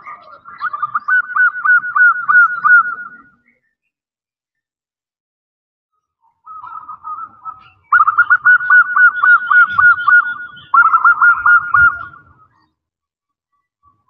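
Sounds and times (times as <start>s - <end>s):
dove cooing: 0.0s - 3.4s, 6.5s - 12.5s.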